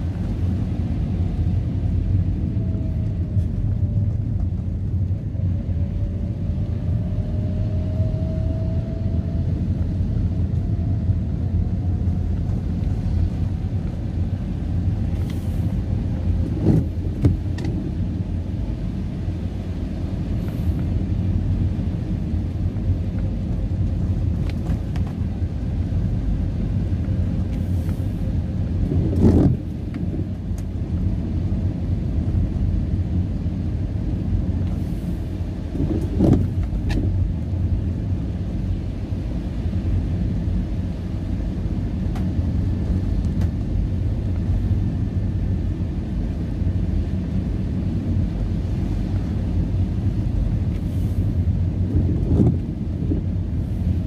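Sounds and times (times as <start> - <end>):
car engine rumble: 0.0 - 54.0
tyres on wet road: 12.2 - 32.5, 33.7 - 40.2.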